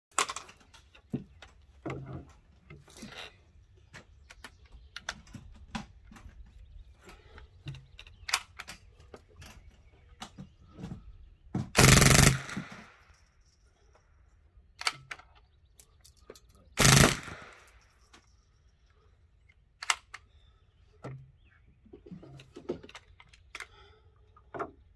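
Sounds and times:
automatic rifle bursts: 11.8 - 12.9, 16.8 - 17.7
sharp clicks and pops: 14.8 - 17.7, 19.8 - 20.3.

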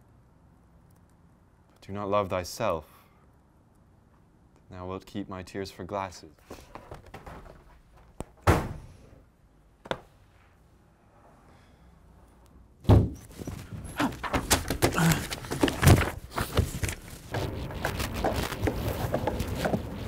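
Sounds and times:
dull thumps: 12.8 - 20.0.

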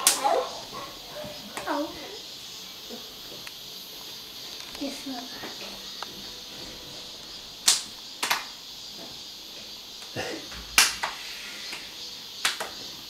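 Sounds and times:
children clapping hands: 0.0 - 0.3, 7.7 - 8.6, 10.5 - 12.8.

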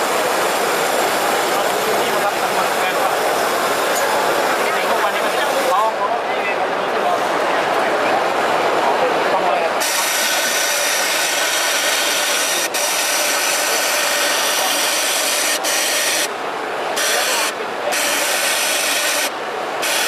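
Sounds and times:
sewing machine whirring: 9.8 - 16.3, 17.0 - 20.0.

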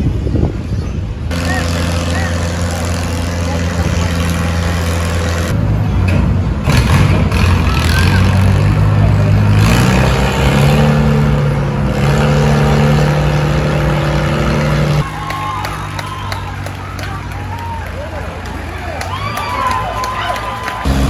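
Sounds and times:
tractor engine revving under load: 1.3 - 5.8, 6.5 - 15.1.

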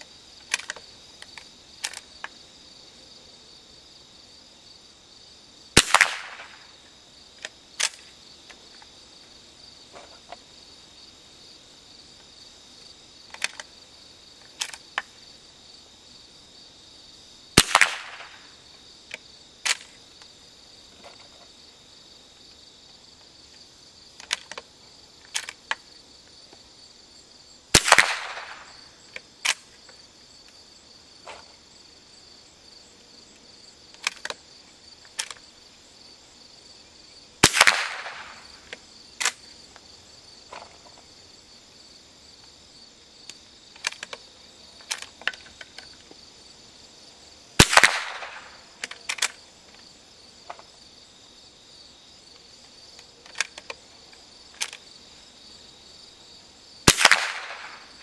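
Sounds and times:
insects chirring: 0.0 - 58.0
rifle shots with echo: 5.8 - 6.7, 17.6 - 18.5, 27.8 - 28.7, 37.4 - 38.4, 47.6 - 48.7, 56.9 - 57.9.

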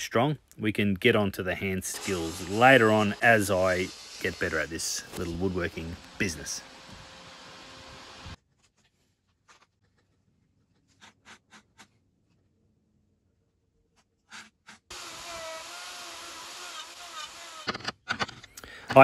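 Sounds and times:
router cutting wood: 1.9 - 8.4, 14.9 - 18.0
knife scratching wood: 10.7 - 12.0.

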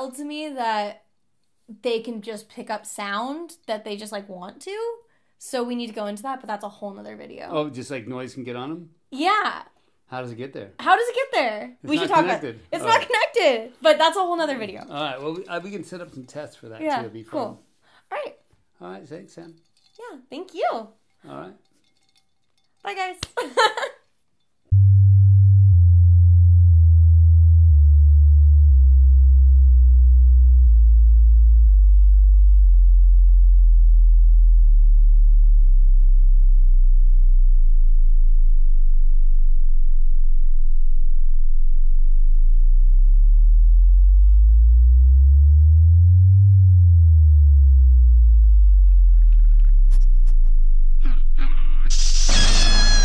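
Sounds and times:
deep electronic sine tone: 24.8 - 53.0.

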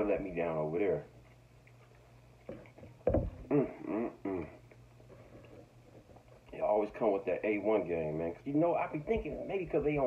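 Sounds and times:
low knock: 3.0 - 3.5
man eating mouth sounds: 3.4 - 5.1.

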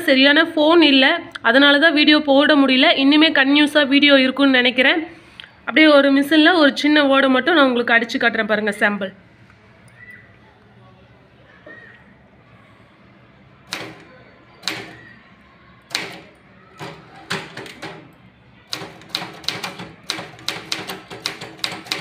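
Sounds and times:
typewriter keys striking: 13.7 - 15.1, 15.9 - 22.0.

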